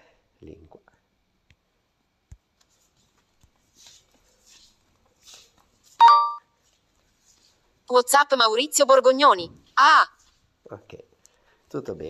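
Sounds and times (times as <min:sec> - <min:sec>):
phone alert chime: 0:06.0 - 0:06.4.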